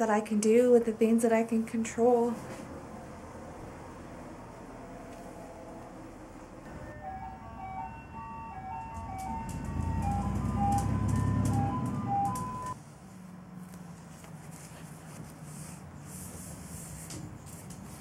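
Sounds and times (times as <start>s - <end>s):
truck engine rumbling: 2.6s - 12.8s
ice cream truck jingle: 6.6s - 12.8s.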